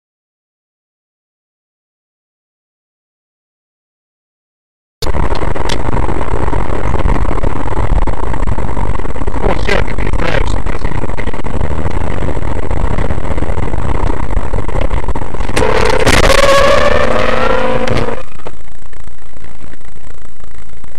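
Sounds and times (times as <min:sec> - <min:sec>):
car engine and road rumble: 0:05.0 - 0:20.9.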